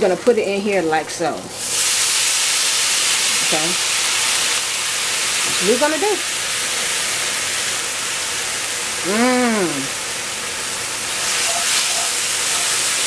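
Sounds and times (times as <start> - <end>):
noodles sizzling in a skillet: 0.0 - 13.0
person humming: 9.0 - 10.0.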